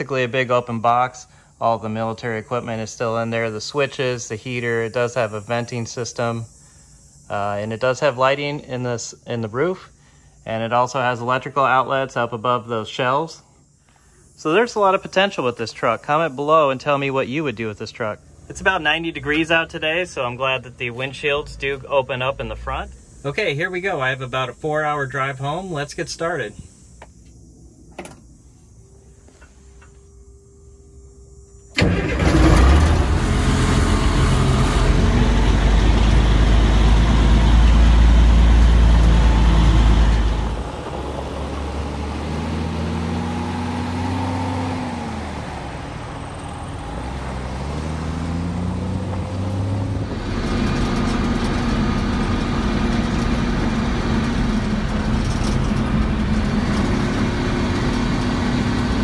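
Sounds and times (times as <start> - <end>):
diesel truck engine revving: 31.7 - 59.0.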